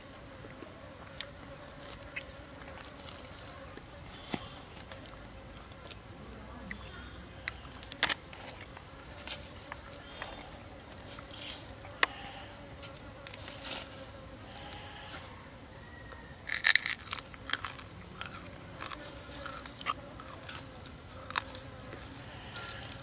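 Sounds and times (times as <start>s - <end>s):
crunchy bites into meat: 16.4s - 20.6s
wet chewing clicks: 16.5s - 21.6s.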